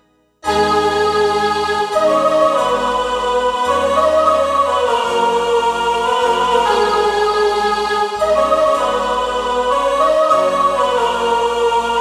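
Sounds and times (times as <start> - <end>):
keyboard choir voice chords: 0.0 - 12.0.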